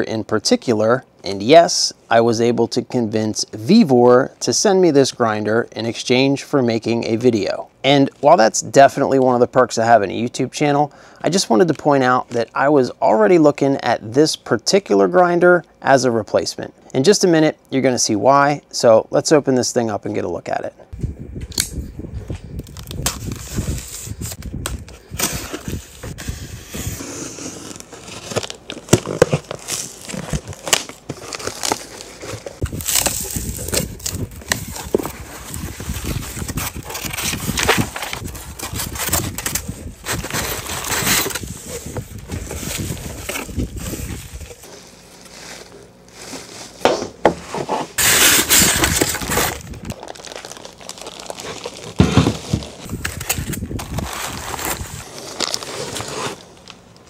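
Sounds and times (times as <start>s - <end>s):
packing tape slit: 22.6s - 35.0s, 48.0s - 56.8s
paper and plastic rustling: 27.5s - 56.8s.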